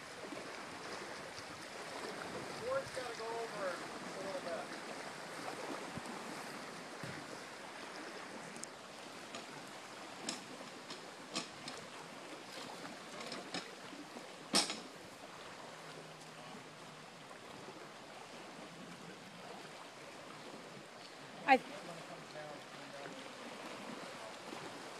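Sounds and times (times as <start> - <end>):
lake water lapping against wall: 0.0 - 24.9.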